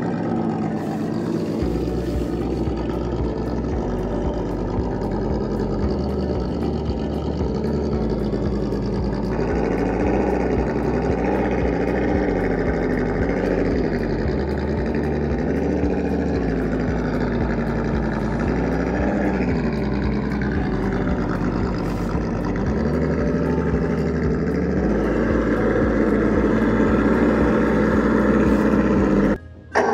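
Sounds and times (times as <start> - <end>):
electric motor whining: 0.0 - 29.9.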